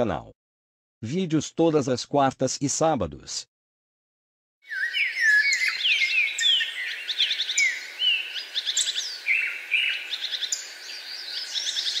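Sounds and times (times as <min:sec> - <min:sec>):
birds calling and trilling: 0:04.6 - 0:12.0.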